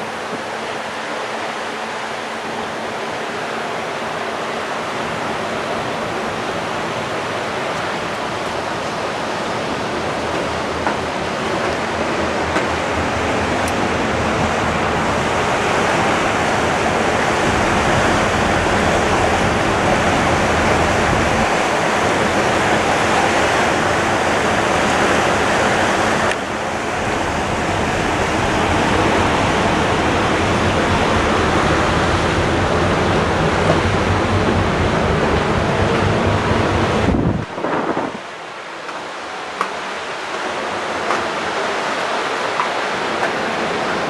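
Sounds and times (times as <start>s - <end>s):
churning wake water: 0.0s - 44.0s
wind rushing: 15.2s - 23.0s, 26.5s - 38.4s.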